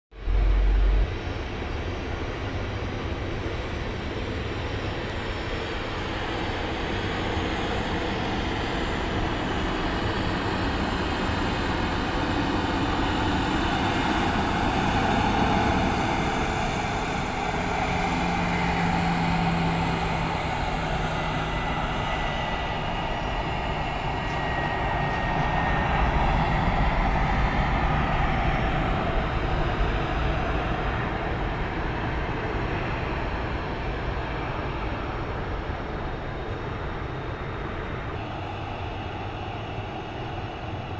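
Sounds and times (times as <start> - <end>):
distant jet airliner rumble: 0.1 - 40.9
short low hum: 0.2 - 1.1.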